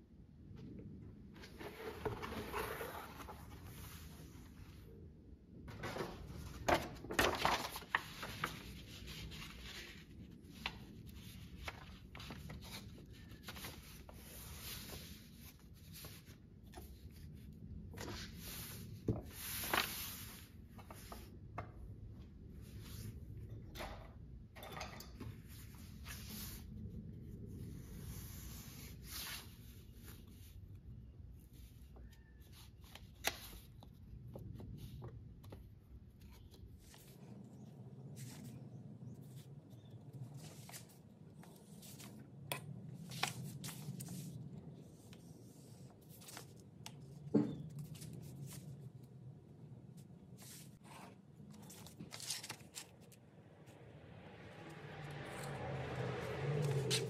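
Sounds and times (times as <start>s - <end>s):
stiff paper rustling and sliding: 5.7s - 21.3s.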